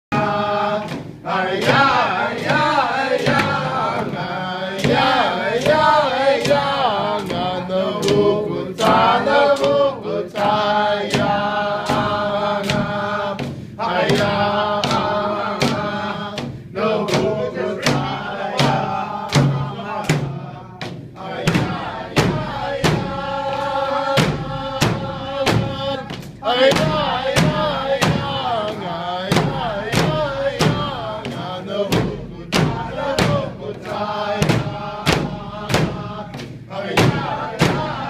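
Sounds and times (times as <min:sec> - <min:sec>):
frame drum beat: 0:00.1 - 0:38.0
group chanting: 0:00.1 - 0:38.0.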